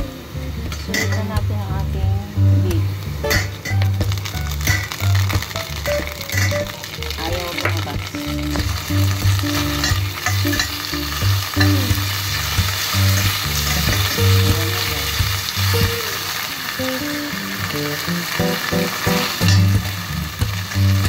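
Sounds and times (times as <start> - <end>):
background music: 0.0 - 21.0
food sizzling in hot oil: 0.0 - 21.0.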